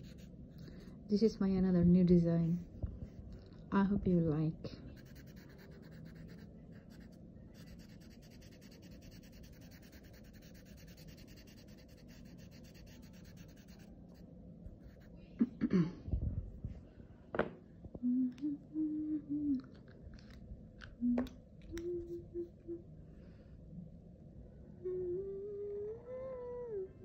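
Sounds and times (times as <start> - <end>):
marker scratching on paper: 0.0 - 0.3, 4.9 - 13.9
person humming: 18.0 - 19.8, 20.9 - 22.9, 24.8 - 27.0.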